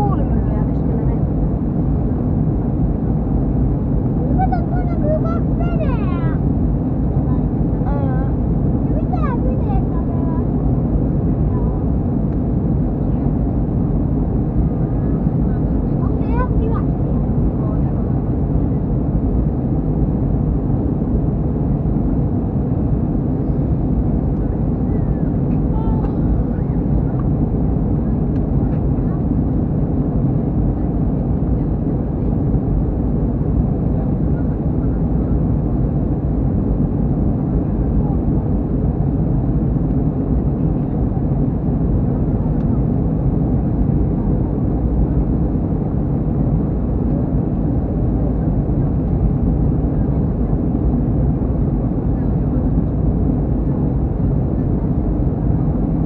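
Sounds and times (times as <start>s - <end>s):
jet airliner cabin rumble: 0.0s - 56.0s.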